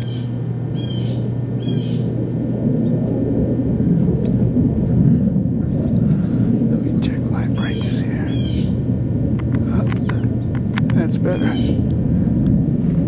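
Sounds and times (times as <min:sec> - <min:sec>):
distant fighter jets rumbling: 0:00.0 - 0:13.0.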